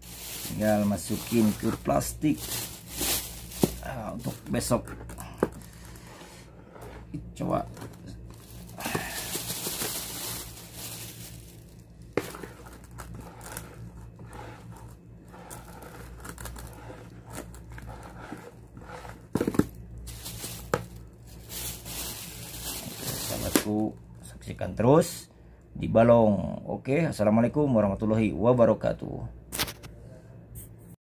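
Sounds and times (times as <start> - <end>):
plastic bag crinkling: 0.0 - 6.1, 7.4 - 13.9, 15.5 - 23.9
spoon scraping plastic basin: 12.2 - 19.7.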